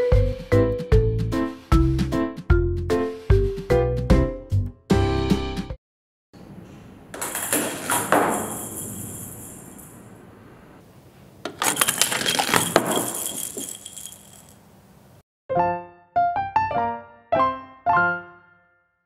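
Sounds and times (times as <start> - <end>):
plastic ball rolling and clattering: 7.2 - 10.0, 11.4 - 14.7.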